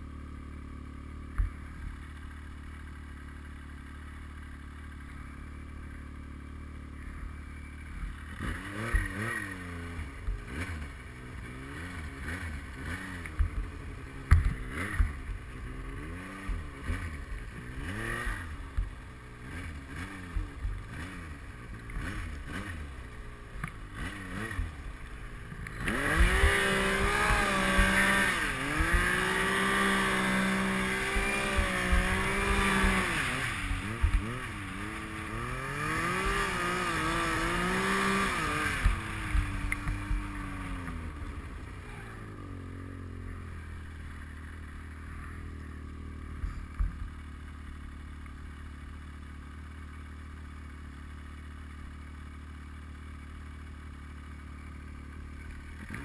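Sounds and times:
snowmobile engine revving: 6.9 - 47.5, 55.1 - 56.0.

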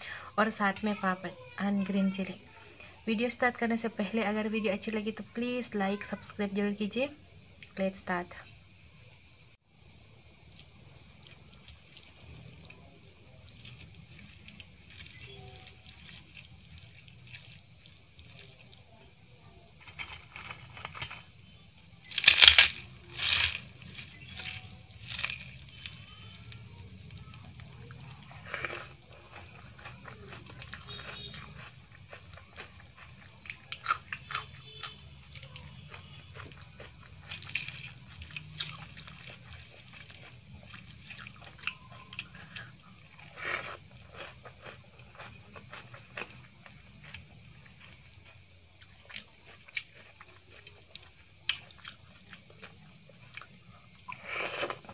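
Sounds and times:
chewing with mouth clicks: 10.4 - 19.2, 19.8 - 54.9
crisp bites into chili: 19.8 - 34.9.

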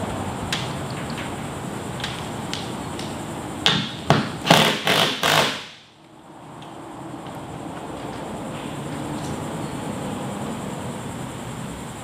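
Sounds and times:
cordless driver bursts: 4.4 - 5.7.

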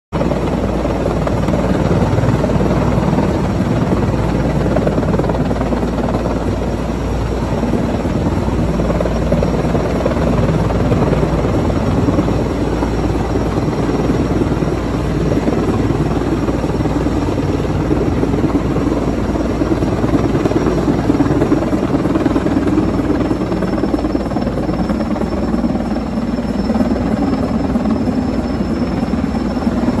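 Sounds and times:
helicopter rotor and engines: 0.1 - 30.0
high turbine whine: 0.2 - 30.0.

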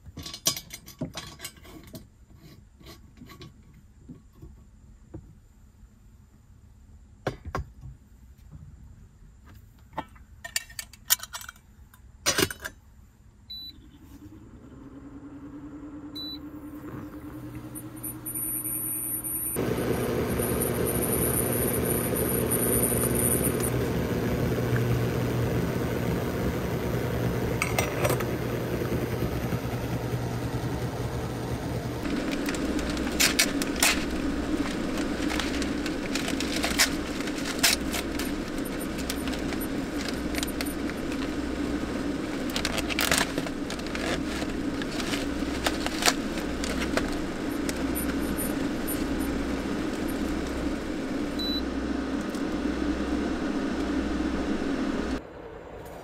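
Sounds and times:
car hum: 13.5 - 56.0.

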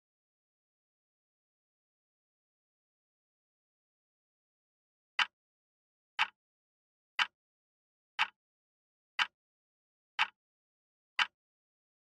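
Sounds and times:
clock ticks: 6.2 - 6.4, 7.2 - 7.4, 8.2 - 8.4, 9.2 - 9.4, 10.2 - 10.4, 11.2 - 11.4.

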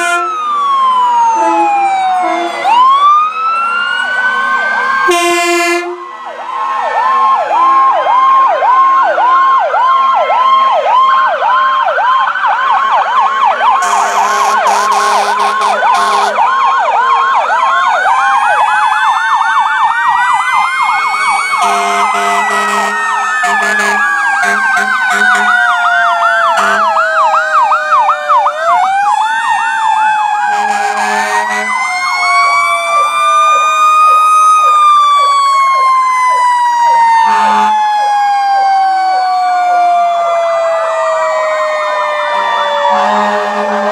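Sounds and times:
low horn blasts: 0.0 - 0.4, 1.4 - 2.8, 5.1 - 6.1, 13.8 - 16.4, 21.6 - 25.5, 26.6 - 26.9, 30.5 - 31.8, 42.9 - 43.9
siren wails: 0.0 - 43.9
siren yelp: 0.0 - 43.9.

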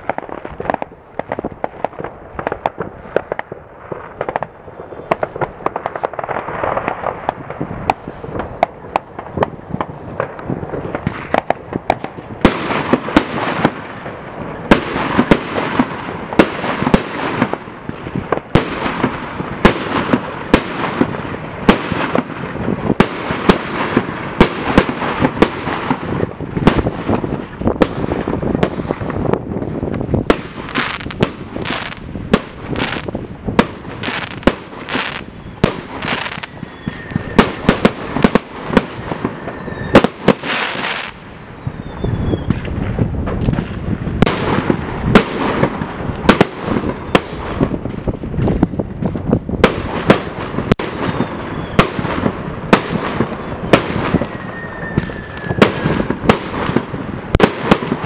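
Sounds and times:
fireworks bangs: 0.0 - 58.0
fireworks crackle: 0.0 - 58.0
faint firework whistle: 4.7 - 5.3, 35.1 - 37.9, 39.0 - 42.8, 47.0 - 47.5, 50.9 - 56.2.

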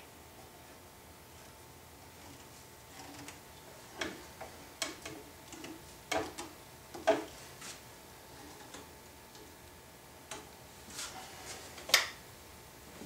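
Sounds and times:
wooden clamps knocking and clicking: 4.0 - 7.4.

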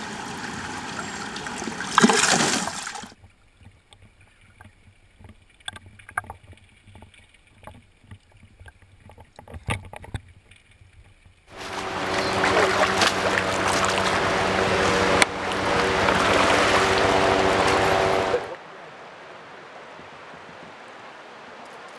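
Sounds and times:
flowing river water: 0.0 - 21.9
underwater clicks and knocks: 3.2 - 11.4.

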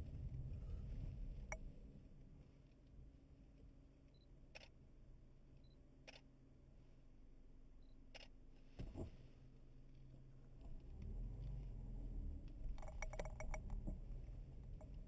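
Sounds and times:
faint car hum: 0.0 - 15.0
faint clicks: 12.4 - 15.0.

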